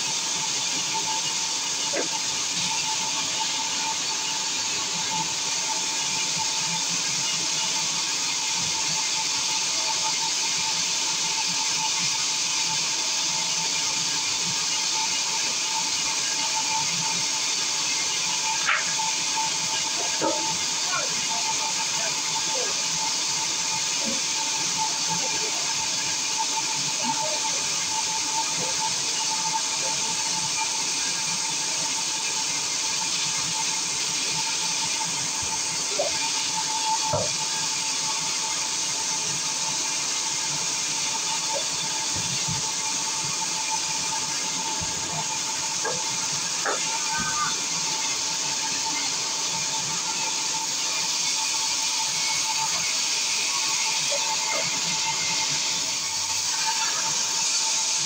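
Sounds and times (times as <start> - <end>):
band saw hissing through log: 40.8 - 58.0.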